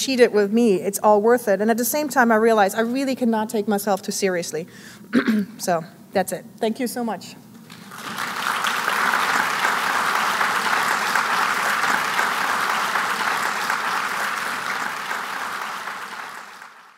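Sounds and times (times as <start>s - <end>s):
audience applauding: 7.7s - 16.9s.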